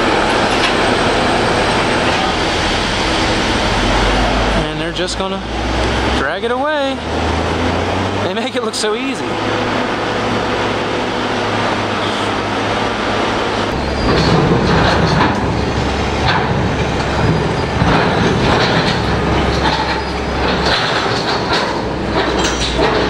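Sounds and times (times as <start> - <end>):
excavator diesel engine running: 0.0 - 23.0
steel body scraping and clanking: 13.6 - 23.0.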